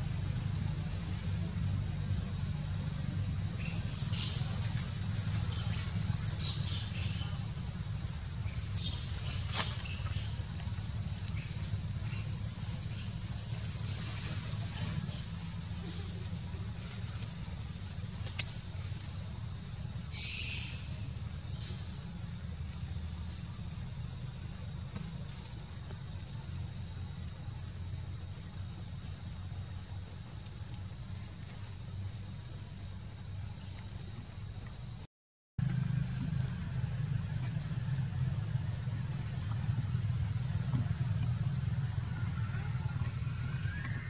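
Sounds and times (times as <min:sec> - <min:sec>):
insects droning: 0:00.0 - 0:44.0.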